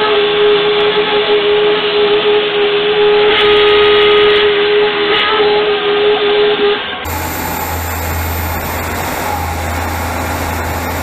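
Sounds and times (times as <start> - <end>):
hissing cutting noise: 7.1 - 11.0
milling machine whine: 7.1 - 11.0.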